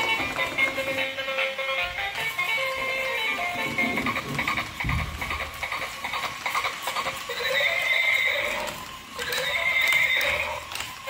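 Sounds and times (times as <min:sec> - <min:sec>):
toy clip-clop hoofbeats: 0:00.0 - 0:11.0.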